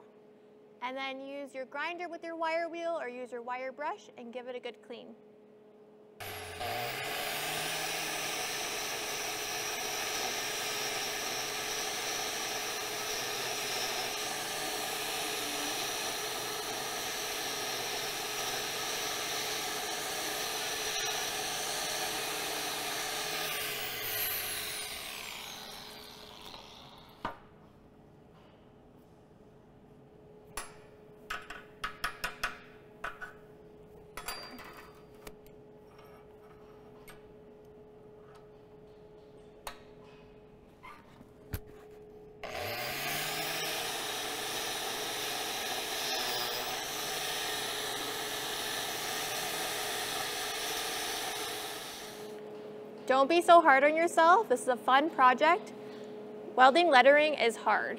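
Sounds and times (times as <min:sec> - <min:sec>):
angle grinder wire wheel on steel: 0:06.2 - 0:27.2, 0:42.4 - 0:52.3.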